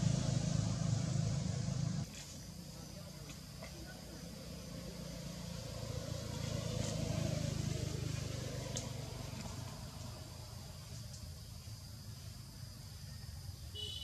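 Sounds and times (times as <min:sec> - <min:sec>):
motor vehicle passing: 0:00.0 - 0:02.2, 0:03.5 - 0:11.1.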